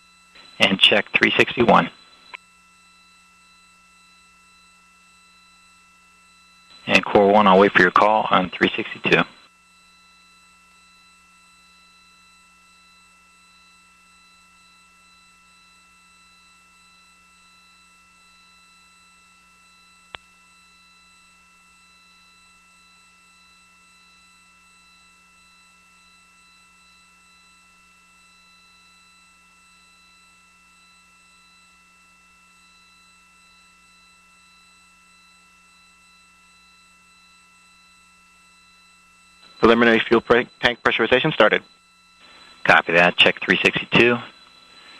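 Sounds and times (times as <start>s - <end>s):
faint electrical hum: 0.0s - 22.6s, 35.8s - 44.9s
thin steady whine tones: 0.0s - 44.9s.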